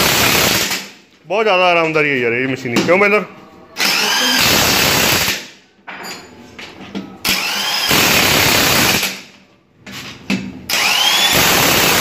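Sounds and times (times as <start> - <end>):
impact wrench burst: 0.0 - 1.0, 3.8 - 5.5, 7.2 - 9.3, 10.7 - 12.0.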